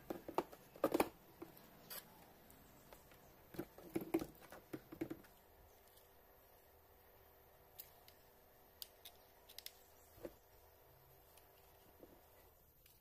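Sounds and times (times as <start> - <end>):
quadcopter frame knocking and rattling: 0.0 - 1.6, 2.9 - 5.4.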